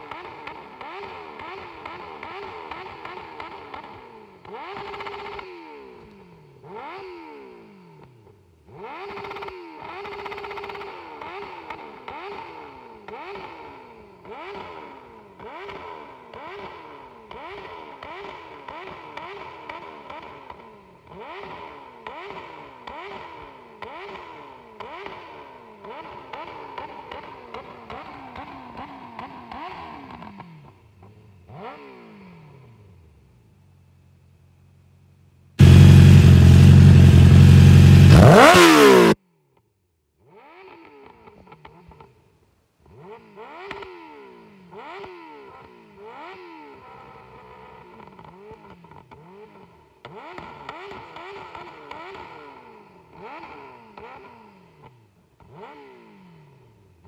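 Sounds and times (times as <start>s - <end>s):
motorcycle engine revving: 0.0s - 34.4s, 35.1s - 39.2s, 40.2s - 57.0s.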